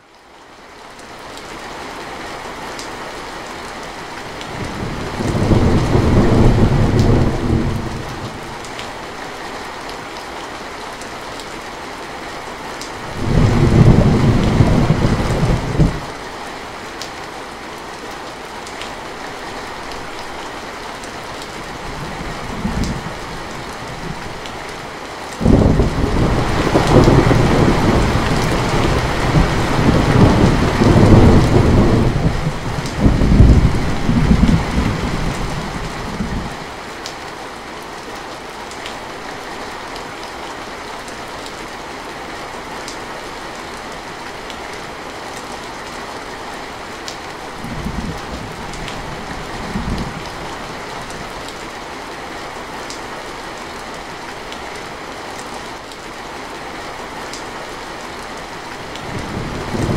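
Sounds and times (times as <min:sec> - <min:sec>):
heavy rain on a metal roof: 0:00.0 - 0:59.9
thunder rumbling: 0:04.6 - 0:08.5, 0:13.1 - 0:16.1, 0:25.4 - 0:36.6.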